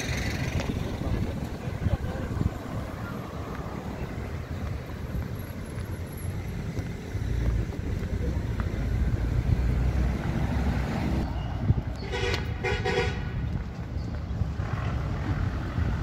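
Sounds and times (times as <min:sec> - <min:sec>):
wind on microphone: 0:00.0 - 0:05.8, 0:09.1 - 0:16.0
city street traffic: 0:00.0 - 0:16.0.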